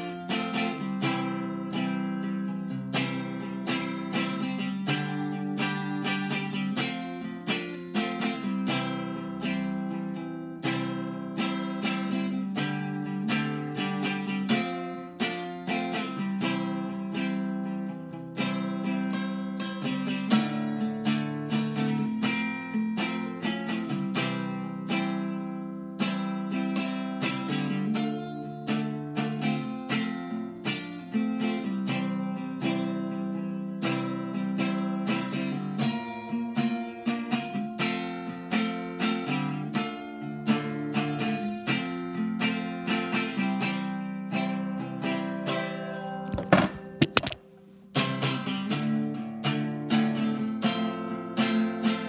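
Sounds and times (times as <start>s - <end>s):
acoustic guitar strumming: 0.0s - 52.0s
phone being handled knock: 46.2s - 47.5s.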